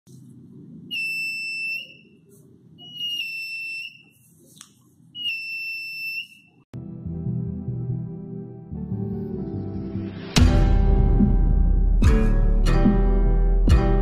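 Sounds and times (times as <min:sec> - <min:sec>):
metal detector beeping: 0:00.9 - 0:02.1, 0:02.8 - 0:04.2, 0:05.2 - 0:06.6.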